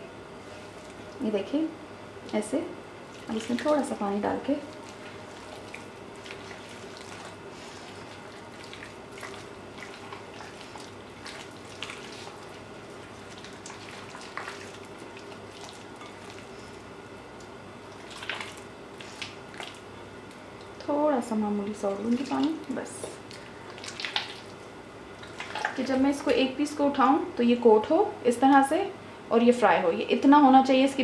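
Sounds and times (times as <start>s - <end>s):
hand squishing chicken in batter: 4.6s - 20.8s, 21.9s - 26.1s.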